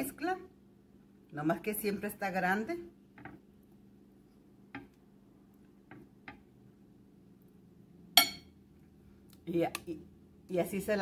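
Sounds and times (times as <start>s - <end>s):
faint steady hum: 0.0s - 11.0s
metal fork tapping ceramic plate: 8.2s - 8.5s.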